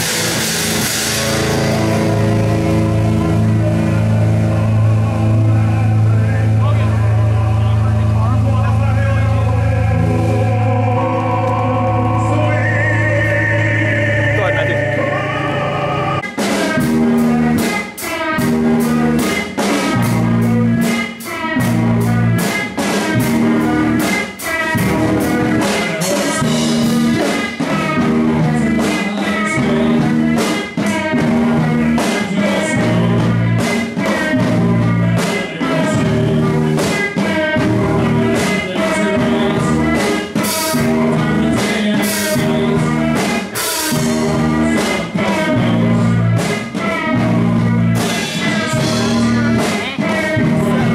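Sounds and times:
live band playing: 0.0 - 50.9.

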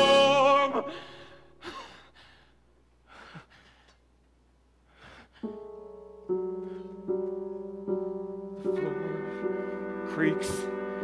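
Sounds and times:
soft breaths: 0.9 - 7.5
piano chords: 5.4 - 11.0.

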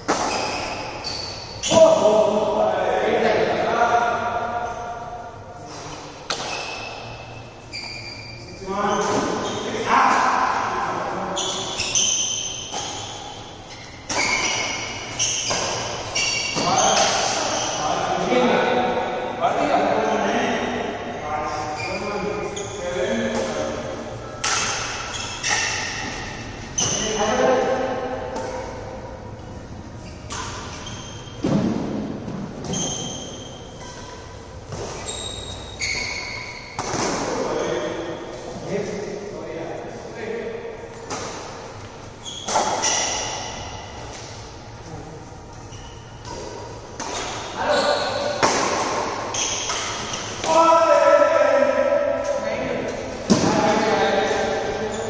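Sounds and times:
rackets striking shuttlecock: 0.0 - 1.0, 5.7 - 7.2, 11.4 - 17.6, 23.2 - 27.1, 30.2 - 38.1, 40.9 - 44.5, 46.2 - 50.6
shoes squeaking on court: 0.0 - 2.0, 5.6 - 10.3, 11.3 - 17.8, 21.4 - 38.5, 40.9 - 50.6, 52.2 - 55.0.

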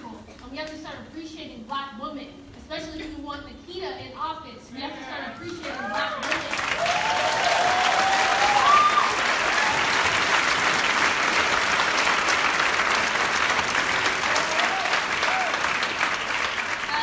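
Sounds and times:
audience applauding: 5.4 - 17.0
people whooping: 5.6 - 10.2, 14.3 - 15.9.

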